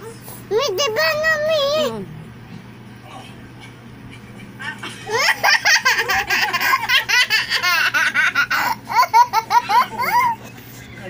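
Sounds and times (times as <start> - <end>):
young child laughing: 4.2 - 10.6.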